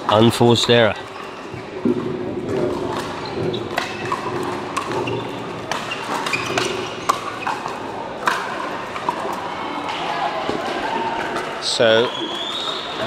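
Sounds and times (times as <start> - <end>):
paddles striking pickleball: 1.5 - 11.6.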